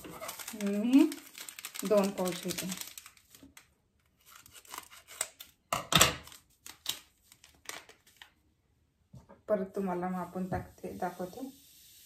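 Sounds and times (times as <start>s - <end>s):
scissors cutting foil pouch: 0.0s - 3.2s, 4.2s - 5.6s
foil crinkling: 0.0s - 8.4s.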